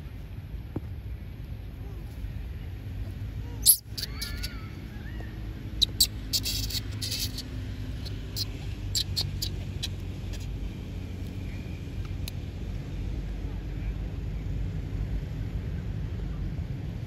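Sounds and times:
steady low rumble: 0.0s - 17.0s
monkeys squeaking: 3.5s - 10.6s.

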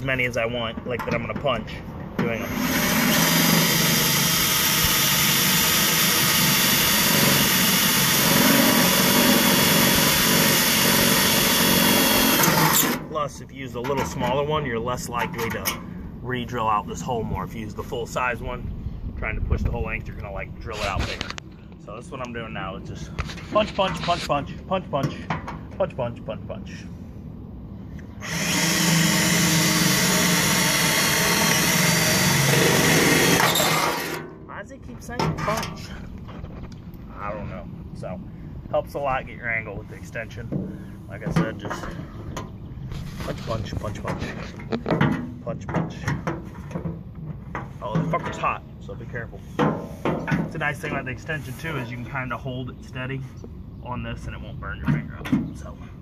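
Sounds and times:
power drill boring through metal: 2.4s - 13.0s, 28.2s - 34.2s.

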